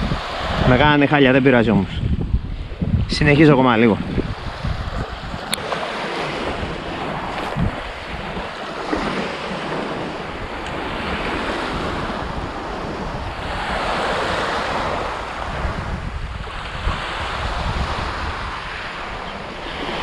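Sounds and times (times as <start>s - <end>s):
wind buffeting microphone: 0.0s - 20.0s
waves washing onto pebbles: 4.3s - 15.8s.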